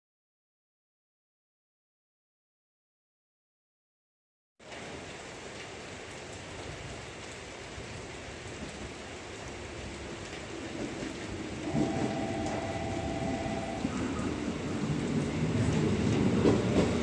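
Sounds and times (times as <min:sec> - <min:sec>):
steady rain: 0:04.6 - 0:17.0
electric train rumble: 0:10.7 - 0:17.0
two-pitch tone: 0:11.7 - 0:14.3.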